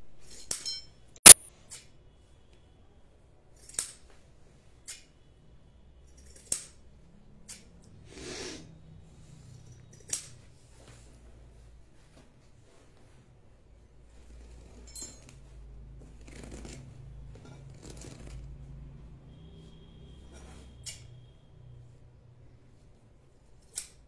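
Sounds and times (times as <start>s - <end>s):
sharp clicks and taps: 1.2s - 1.5s.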